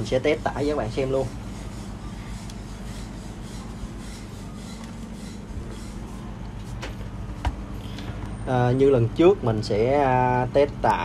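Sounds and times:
rubbing and handling noise: 0:00.0 - 0:07.4
steady low hum: 0:00.0 - 0:11.0.

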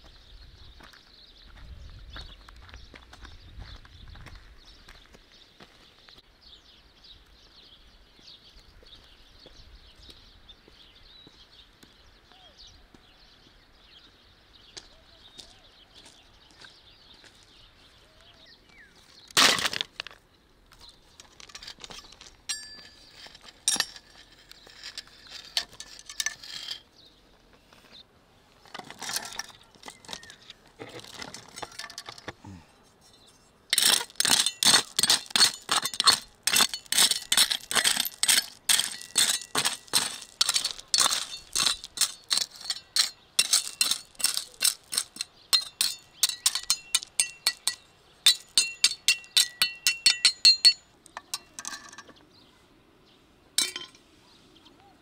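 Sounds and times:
stones clinking together: 0:19.2 - 0:26.9, 0:28.6 - 0:32.6, 0:33.7 - 0:52.2, 0:53.6 - 0:54.0
trowel scraping into gravel: 0:19.3 - 0:20.2, 0:20.9 - 0:27.1, 0:28.7 - 0:52.0.

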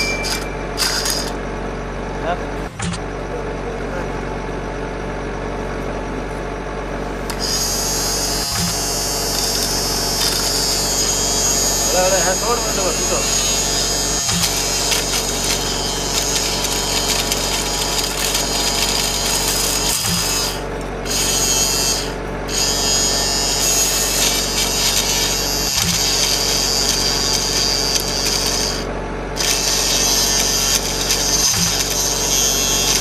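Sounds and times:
electric motor whirring: 0:00.0 - 0:01.4, 0:07.1 - 0:33.0
grass being chopped: 0:13.2 - 0:20.8, 0:23.7 - 0:28.5, 0:29.4 - 0:33.0.

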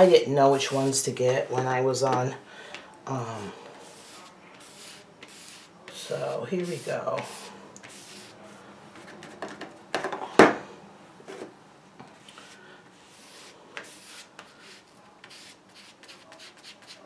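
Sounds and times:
sponge brush gritty rubbing: 0:03.8 - 0:08.6.

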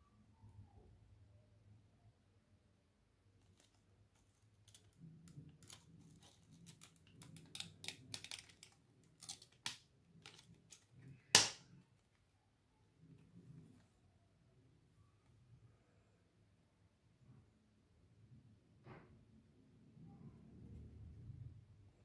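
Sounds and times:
plastic case clicking and creaking: 0:03.4 - 0:11.1.

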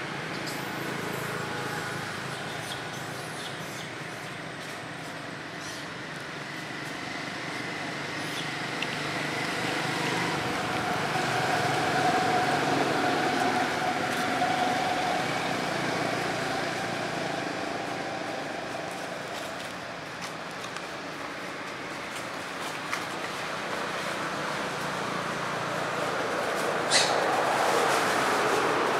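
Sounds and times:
vehicle passing by: 0:07.7 - 0:19.7, 0:22.9 - 0:28.9.

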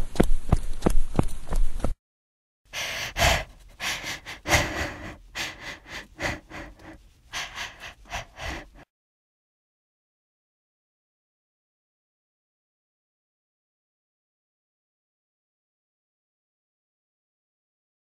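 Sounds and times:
person breathing hard gasping: 0:02.7 - 0:08.9.

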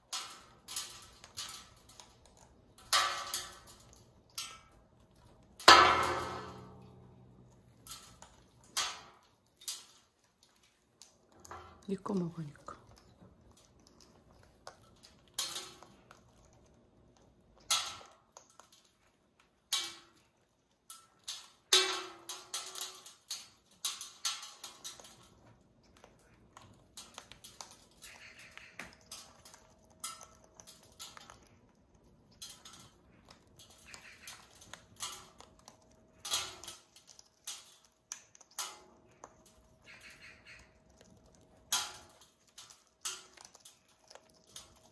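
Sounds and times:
parrots crunching food: 0:00.0 - 0:44.9.

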